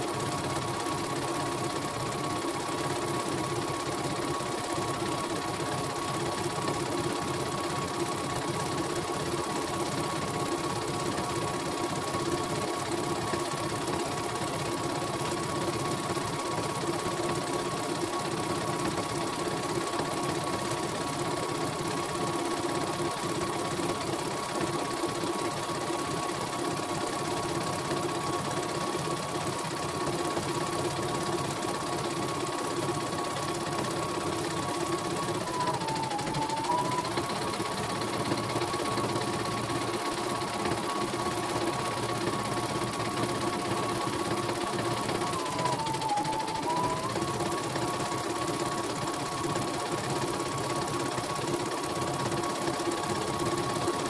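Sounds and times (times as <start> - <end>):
embroidery machine stitching: 32.0 - 54.0.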